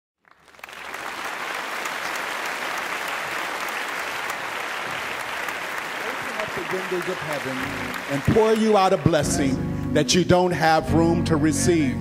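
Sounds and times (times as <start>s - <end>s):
congregation applauding: 0.2s - 9.8s.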